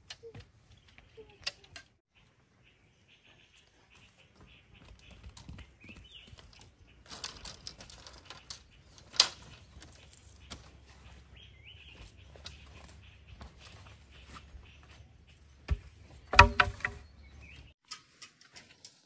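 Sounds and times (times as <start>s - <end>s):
bamboo slats rattling: 7.0s - 10.3s, 15.7s - 17.1s
sharp knock on wood: 15.7s - 17.0s.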